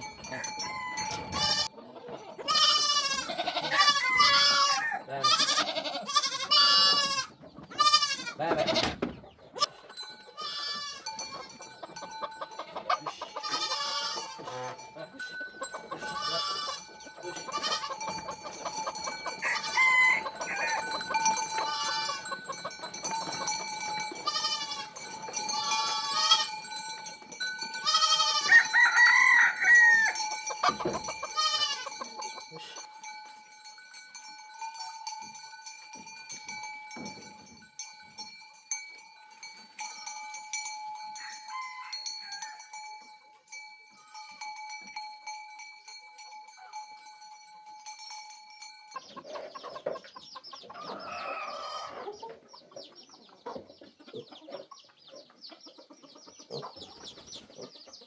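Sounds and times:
goats bleating: 0.2 - 9.0, 9.6 - 26.8, 27.6 - 32.9
rooster crowing: 0.3 - 1.7, 3.5 - 5.1, 18.9 - 23.5, 27.8 - 32.0, 41.2 - 42.8.

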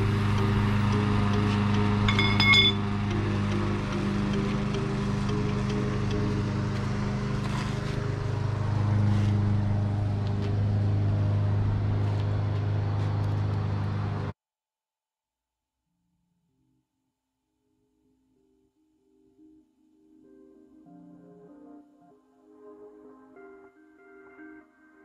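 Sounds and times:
electronic music with low bass: 0.0 - 12.5.

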